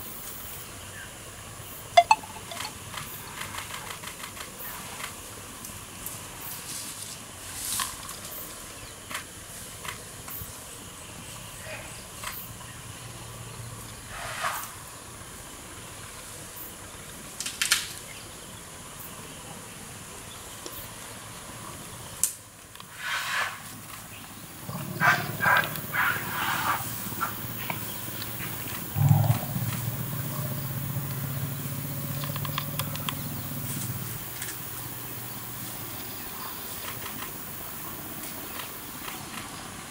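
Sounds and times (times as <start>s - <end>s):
low elephant rumble: 24.6s - 36.7s.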